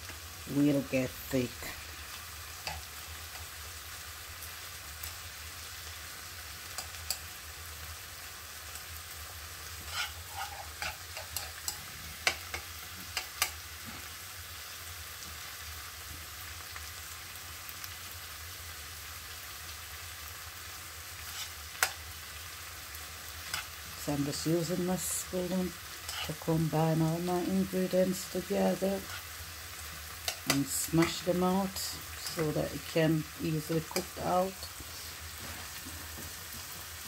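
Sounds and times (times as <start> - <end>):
vegetables sizzling in a frying pan: 0.0 - 37.0
metal spoon scraping a pan: 6.7 - 7.3, 9.6 - 14.1, 21.2 - 22.1, 23.2 - 23.9, 25.8 - 26.5, 29.0 - 31.3.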